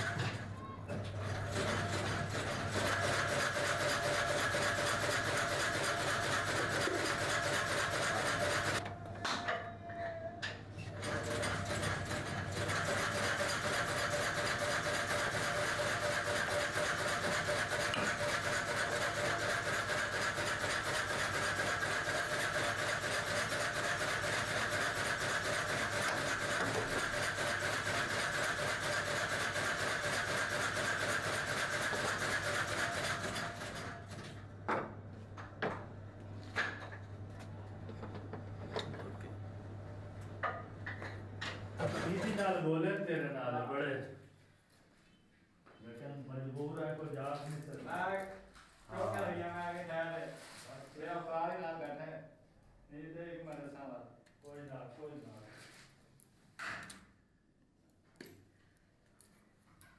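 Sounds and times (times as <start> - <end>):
machine motor rattling: 1.2 - 8.8, 11.0 - 34.2
low electrical hum: 33.4 - 59.9.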